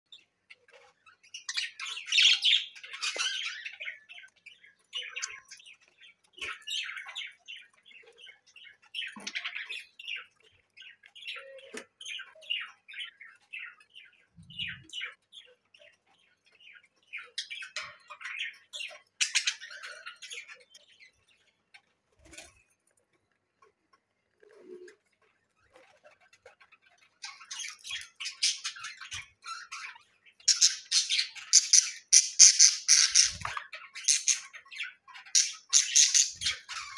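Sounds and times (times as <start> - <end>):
budgerigars chirping and chattering: 0.1 - 22.7, 24.6 - 36.9.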